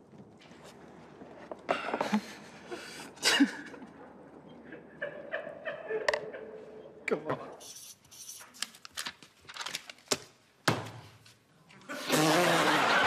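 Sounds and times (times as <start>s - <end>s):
man laughing: 4.7s - 6.8s.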